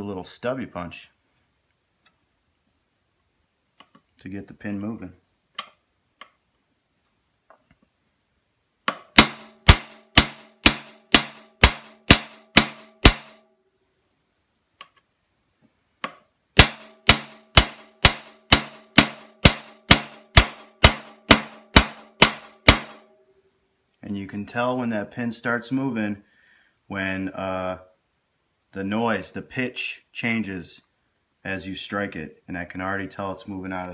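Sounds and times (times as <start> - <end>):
hammer striking steel punch: 8.9 - 13.4, 16.0 - 23.0.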